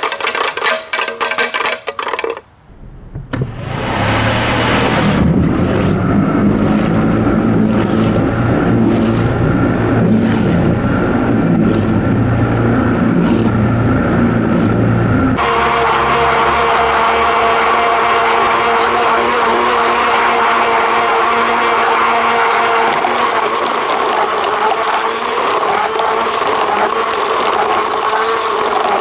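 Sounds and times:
rock rattling in blender jar: 0:00.0 - 0:02.5, 0:22.8 - 0:29.0
blender motor humming: 0:15.4 - 0:29.0.

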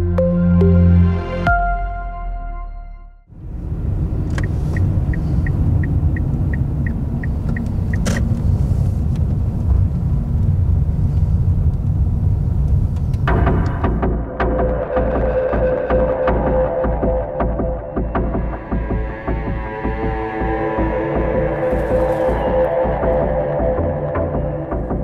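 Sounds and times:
music: 0:00.0 - 0:03.3, 0:13.3 - 0:25.0
car engine and road rumble: 0:03.3 - 0:25.0
turn signal ticking: 0:04.0 - 0:13.9.

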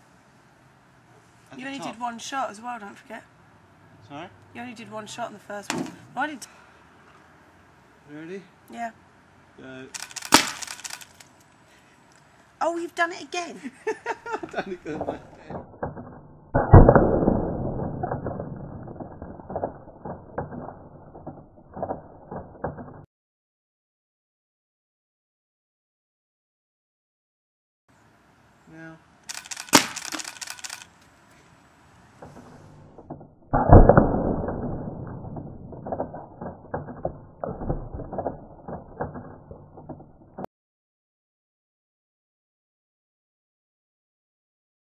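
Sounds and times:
irregular clicks and crackles: 0:09.9 - 0:12.3, 0:17.8 - 0:23.1, 0:29.2 - 0:31.4, 0:32.2 - 0:40.5
paintball hitting egg: 0:10.0 - 0:11.0, 0:15.0 - 0:23.0, 0:29.3 - 0:30.8, 0:32.3 - 0:39.4
loud dull bang: 0:16.6 - 0:19.7.

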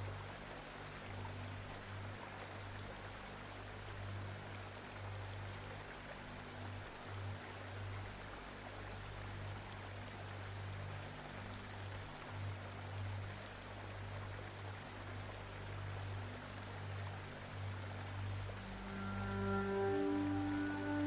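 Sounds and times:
low hum: 0:12.5 - 0:21.0.

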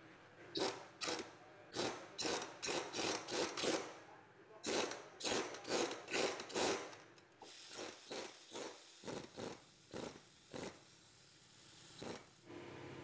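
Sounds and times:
ratchet wrench rasping: 0:00.6 - 0:03.9, 0:04.6 - 0:07.0.

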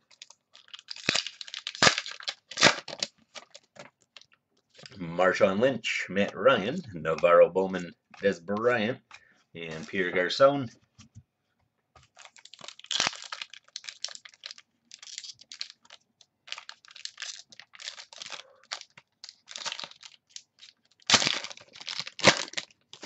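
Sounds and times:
wrapper crinkling and tearing: 0:00.0 - 0:05.0, 0:12.0 - 0:23.0.

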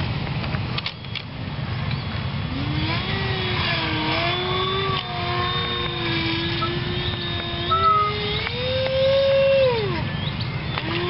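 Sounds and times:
model jet motor whine: 0:02.4 - 0:11.0.

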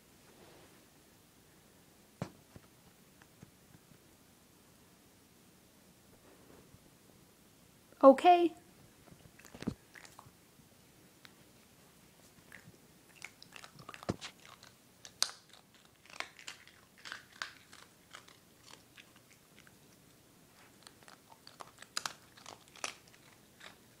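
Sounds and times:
dog crunching a hard treat: 0:09.2 - 0:10.3, 0:12.4 - 0:24.0.

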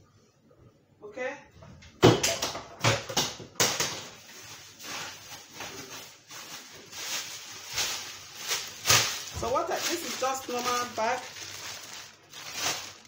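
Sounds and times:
plastic bag crinkling: 0:04.0 - 0:13.0.

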